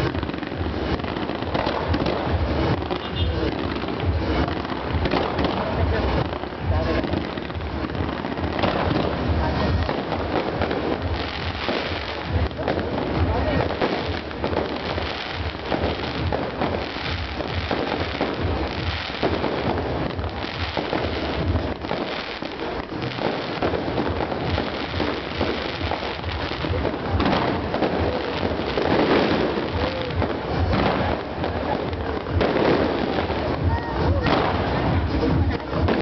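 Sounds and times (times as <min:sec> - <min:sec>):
fireworks bursting and crackling: 0:00.0 - 0:36.0.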